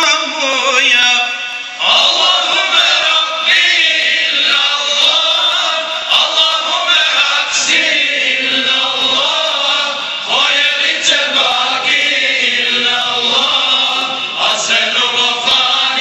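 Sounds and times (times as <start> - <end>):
men singing a hymn: 0.6 - 16.0.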